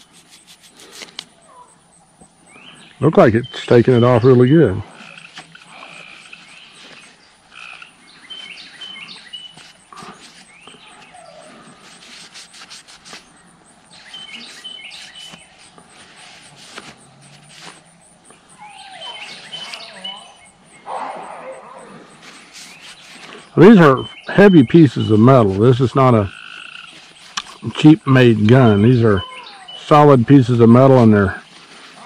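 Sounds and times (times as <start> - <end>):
cloth wiping metal: 0.0 - 1.2, 9.6 - 13.3, 14.0 - 17.9, 22.2 - 23.5
small birds chirping: 0.0 - 32.0.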